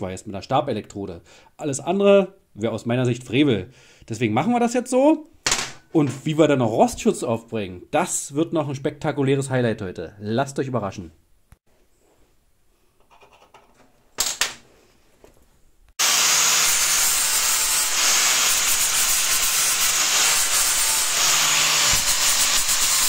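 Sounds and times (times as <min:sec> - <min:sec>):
angle grinder grinding steel: 0:16.0 - 0:23.0.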